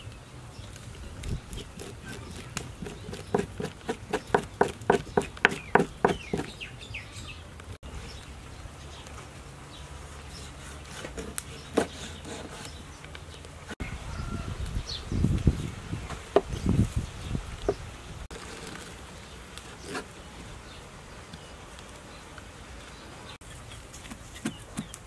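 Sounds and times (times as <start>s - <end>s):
birds chirping: 0.0s - 25.0s
cleaver strokes on board: 1.5s - 6.6s, 10.0s - 12.8s
spoon scraping fish on board: 1.5s - 6.6s.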